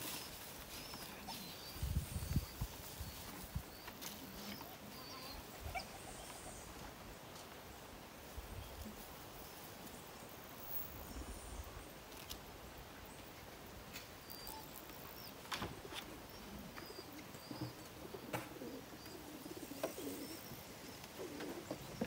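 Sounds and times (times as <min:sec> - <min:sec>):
pigeons cooing: 0:14.1 - 0:22.0
faint high bird chirps: 0:14.2 - 0:15.4.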